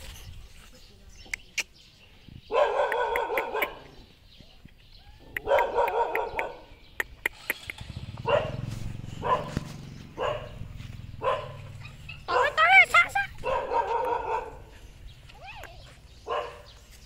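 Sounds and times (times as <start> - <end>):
young dogs yapping and barking: 2.5 - 4.2, 5.1 - 17.0.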